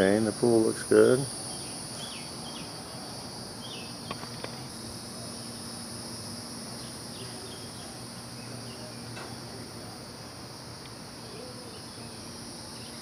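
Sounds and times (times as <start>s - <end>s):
faint low hum: 0.0s - 13.0s
insects droning: 0.0s - 13.0s
faint chirps: 6.7s - 9.9s.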